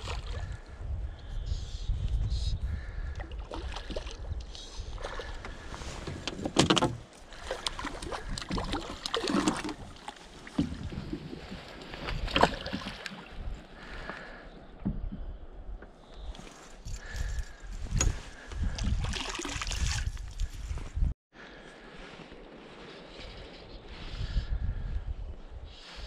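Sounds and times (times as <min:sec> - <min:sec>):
water splashing and sloshing: 0:00.0 - 0:00.6, 0:03.2 - 0:15.3, 0:16.3 - 0:20.8
wind rumble on microphone: 0:00.0 - 0:07.0, 0:10.5 - 0:12.5, 0:13.2 - 0:21.2, 0:22.1 - 0:26.0.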